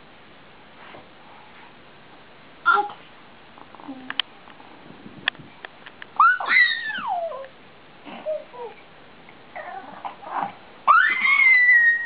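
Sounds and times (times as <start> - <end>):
baby squealing: 6.2 - 7.4, 10.9 - 12.0
baby babbling: 8.2 - 8.8.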